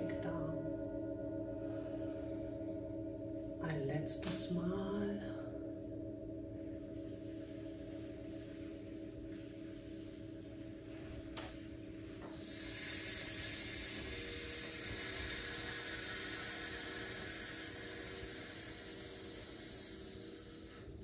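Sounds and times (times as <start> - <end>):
long exhaled hiss: 12.1 - 21.0.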